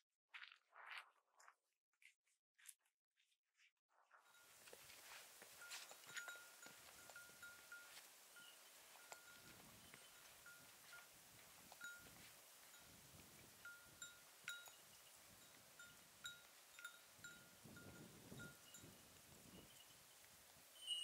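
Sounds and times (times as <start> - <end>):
small bell ringing: 4.3 - 11.1, 11.7 - 12.9, 13.6 - 14.9, 15.8 - 19.0.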